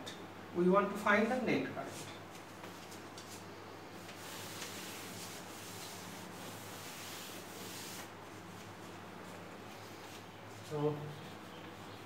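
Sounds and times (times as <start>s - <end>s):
duster scrubbing a chalkboard: 4.0s - 12.0s.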